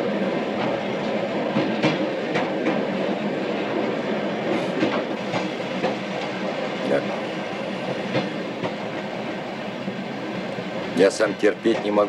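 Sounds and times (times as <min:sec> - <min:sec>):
train rumble inside carriage: 0:00.0 - 0:12.0
wheels clacking over rail joints: 0:10.4 - 0:12.0.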